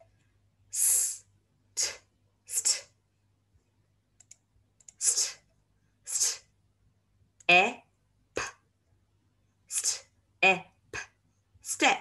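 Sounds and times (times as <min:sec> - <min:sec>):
woman hissing s sound: 0:00.8 - 0:02.9, 0:05.0 - 0:05.4, 0:06.1 - 0:06.5
woman saying breathy t sounds: 0:01.8 - 0:02.9, 0:06.1 - 0:06.5, 0:08.4 - 0:08.6, 0:09.7 - 0:12.0.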